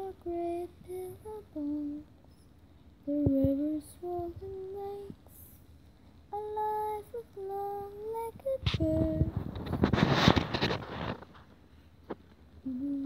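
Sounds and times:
girl singing long notes: 0.0 - 2.1, 3.0 - 5.6, 6.3 - 9.4, 12.6 - 13.0
handling rustling noise: 8.6 - 12.5.

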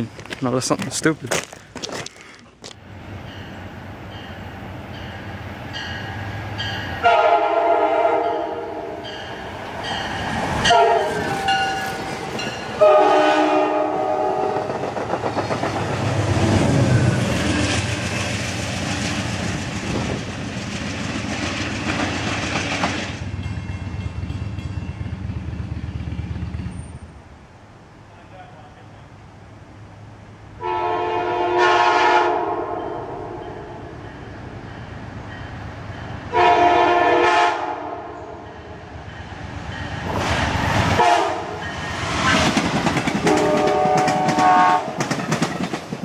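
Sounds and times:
train passing with clicking wheels: 2.7 - 27.2, 28.1 - 46.0
train horn blasts: 7.0 - 9.0, 10.7 - 12.0, 12.7 - 14.7, 30.6 - 33.7, 36.3 - 38.4, 41.0 - 41.6, 43.2 - 45.0.

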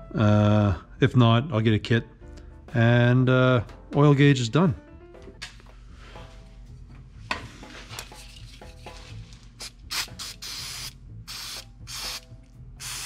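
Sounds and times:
rubbing and handling noise: 5.8 - 9.7
pressurized spray hissing: 9.9 - 12.2, 12.8 - 13.0.

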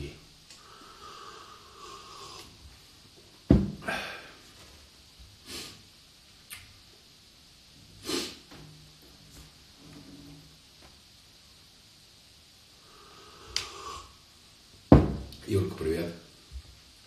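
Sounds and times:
noisy breaths: 0.5 - 3.1, 3.7 - 4.8, 12.7 - 14.3.

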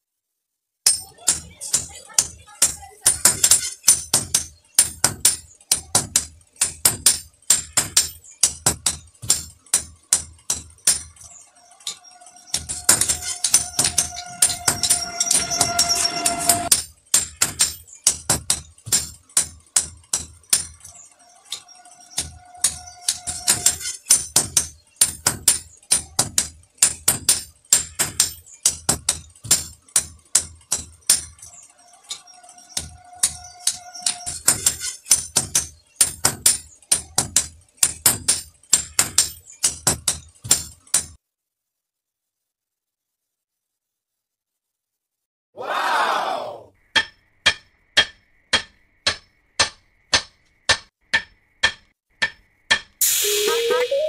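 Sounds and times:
hammers striking metal on anvil: 0.9 - 11.2, 12.5 - 20.9, 22.0 - 31.5, 32.8 - 41.2, 47.0 - 53.2.

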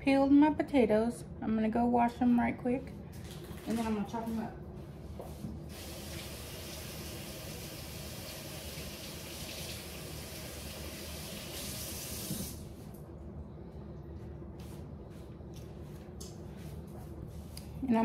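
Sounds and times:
tap water running: 5.7 - 12.7.

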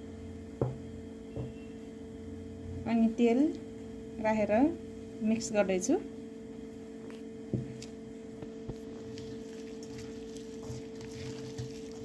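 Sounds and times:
steady background hum: 0.0 - 12.0
hand squishing food in bowl: 7.6 - 12.0.

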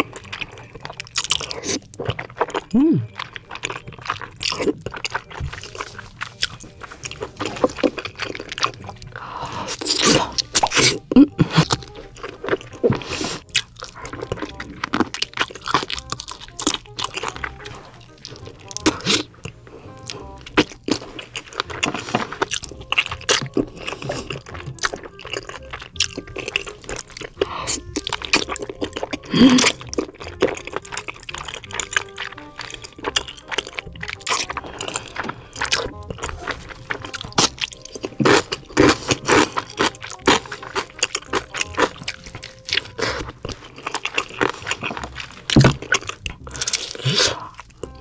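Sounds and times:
background music: 0.0 - 48.0
wet chewing and smacking: 0.0 - 48.0
slurping noodles: 12.8 - 15.1, 17.1 - 28.5, 29.1 - 48.0.

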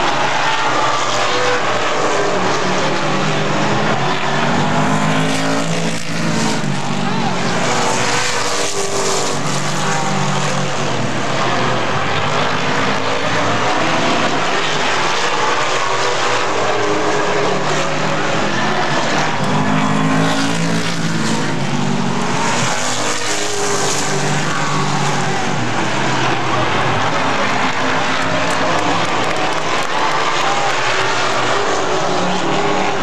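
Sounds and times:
race car engines at high revs: 0.0 - 33.0
race cars passing by: 0.0 - 33.0.

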